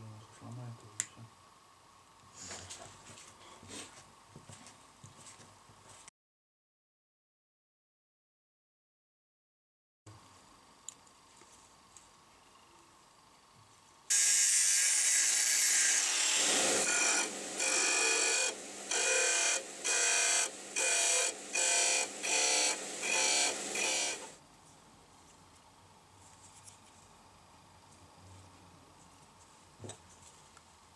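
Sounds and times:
disc sander grinding wood: 14.1s - 24.4s.

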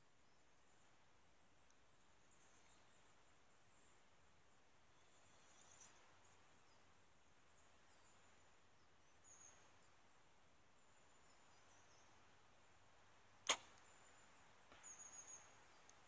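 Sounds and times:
bow string crack: 13.4s - 13.9s.

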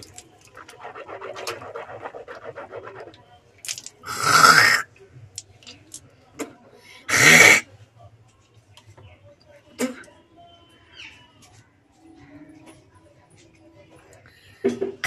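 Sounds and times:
woman rinsing mouth with water: 0.0s - 4.8s
throat hawking and spitting: 4.0s - 4.9s, 7.1s - 7.6s.

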